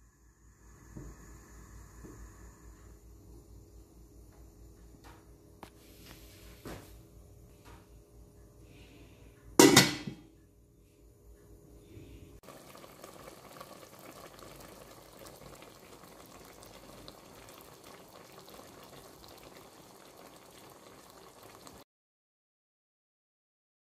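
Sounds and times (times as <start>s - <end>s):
stew bubbling in a pot: 12.4s - 21.8s.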